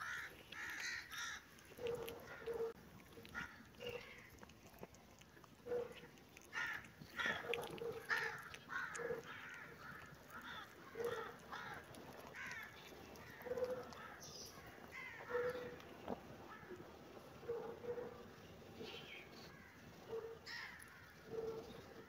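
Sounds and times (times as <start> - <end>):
crows cawing: 0.0 - 1.5, 6.5 - 15.6, 20.4 - 21.2.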